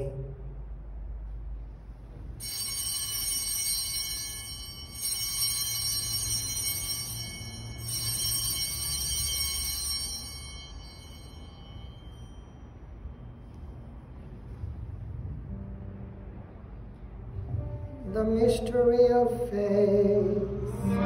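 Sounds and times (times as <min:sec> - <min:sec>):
altar bells ringing: 0:02.4 - 0:14.2.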